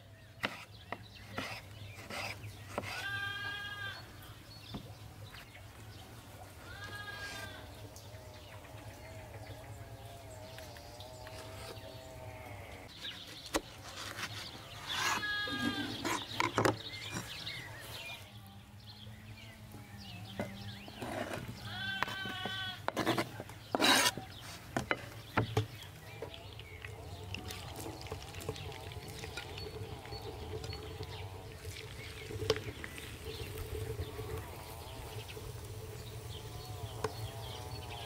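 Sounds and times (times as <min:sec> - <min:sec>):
goat bleating: 0:03.0 - 0:04.0, 0:06.7 - 0:07.7, 0:15.2 - 0:16.0, 0:21.6 - 0:22.8.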